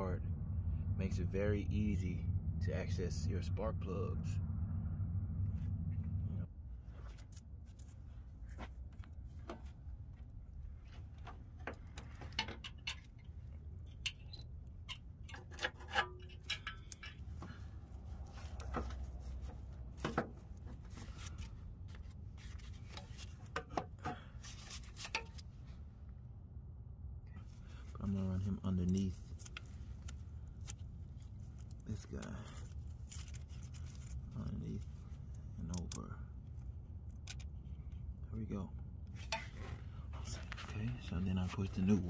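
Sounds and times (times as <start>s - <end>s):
steady low rumble: 0.0s - 42.0s
metal clicks and knocks: 11.2s - 17.4s.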